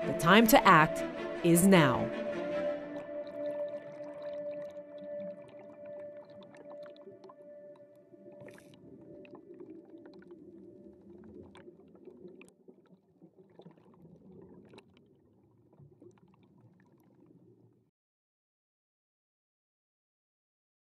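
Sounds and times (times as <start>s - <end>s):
held tone: 0.0s - 2.1s
low rumble of moving water: 2.1s - 17.9s.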